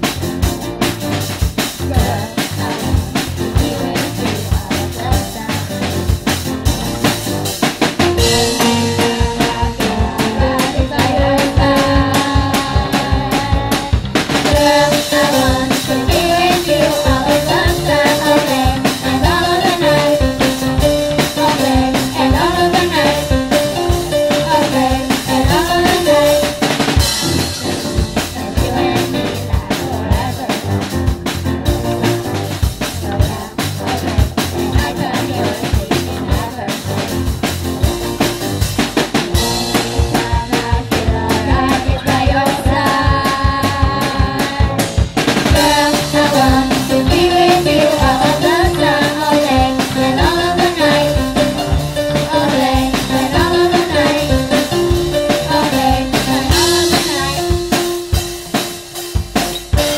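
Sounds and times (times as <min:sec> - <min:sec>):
drum kit: 0:00.0 - 0:59.9
rock band playing: 0:00.0 - 0:59.9
young people singing: 0:01.8 - 0:05.8, 0:08.2 - 0:30.9, 0:32.8 - 0:37.1, 0:39.7 - 0:57.5.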